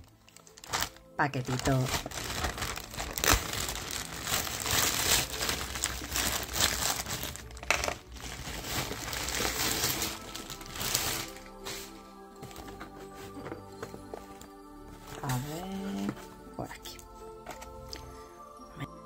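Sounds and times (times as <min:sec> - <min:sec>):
plastic packaging crinkling: 0:00.0 - 0:16.4.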